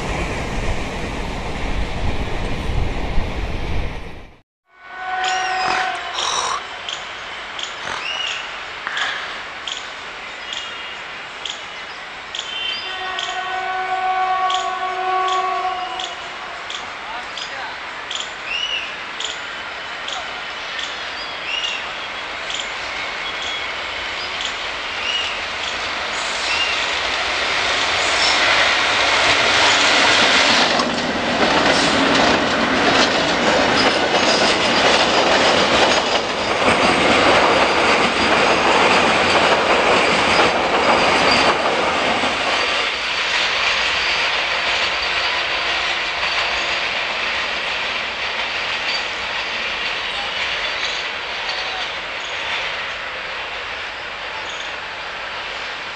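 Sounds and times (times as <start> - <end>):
freight train wheels clattering: 22.4 - 53.0.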